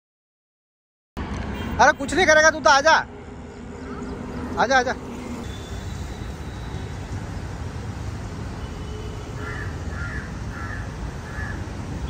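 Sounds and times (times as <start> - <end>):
crow cawing: 9.4 - 11.7.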